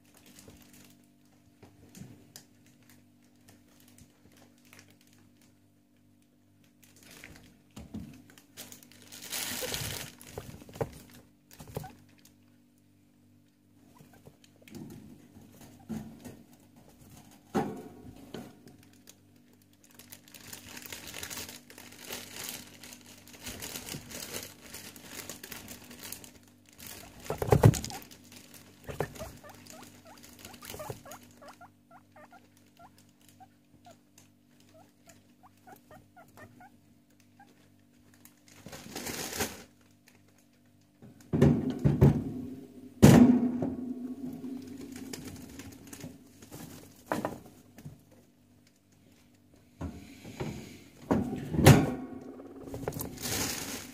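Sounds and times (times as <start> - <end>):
guinea pigs rustling on hay: 0.0 - 5.6, 6.5 - 12.4, 18.2 - 36.7, 44.2 - 47.7, 52.7 - 53.9.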